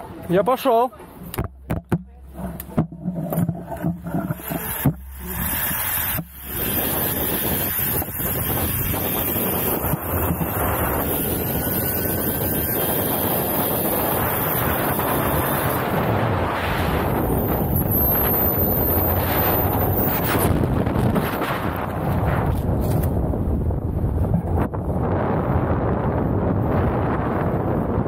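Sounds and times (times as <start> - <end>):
knocks and clatter: 1.3 - 5.1
wind rushing over microphone: 2.2 - 28.0
pulleys running along steel cable: 3.8 - 16.1, 16.9 - 20.5.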